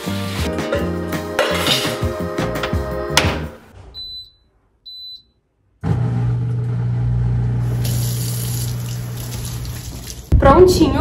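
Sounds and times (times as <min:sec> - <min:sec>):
dishwasher beeps: 0:03.8 - 0:05.4
faucet running into sink: 0:07.6 - 0:10.3.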